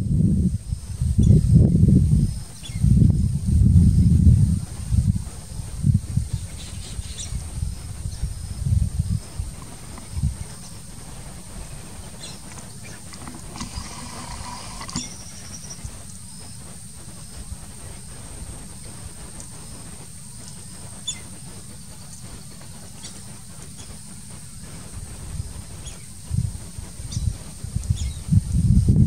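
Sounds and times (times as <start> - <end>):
thin high hiss: 0.0 - 29.0
distant bird chirps: 9.2 - 16.0.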